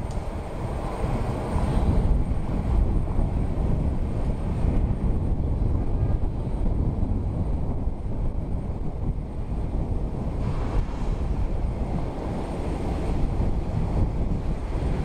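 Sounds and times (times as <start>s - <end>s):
wind rumble on microphone: 0.0s - 15.0s
jet engine rush: 9.6s - 15.0s.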